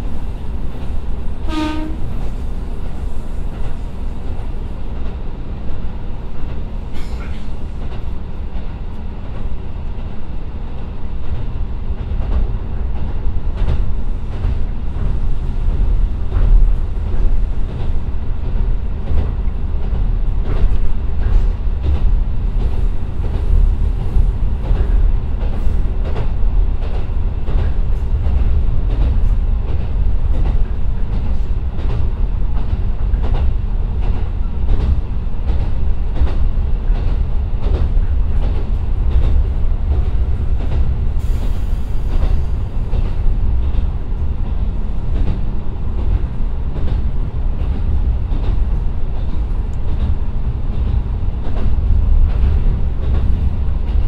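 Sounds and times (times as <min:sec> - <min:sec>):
diesel railcar rumble: 0:00.0 - 0:54.0.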